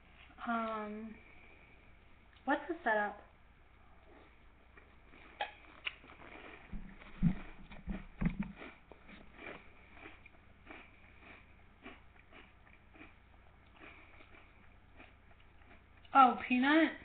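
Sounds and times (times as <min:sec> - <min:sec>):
person chewing crunchy cereal: 0:05.1 - 0:16.1
dull thumps: 0:06.7 - 0:08.6.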